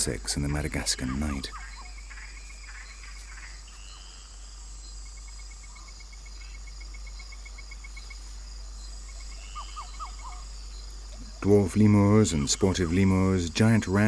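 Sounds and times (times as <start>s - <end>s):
crickets trilling: 0.0s - 14.0s
ticking insect chirps: 0.0s - 14.0s.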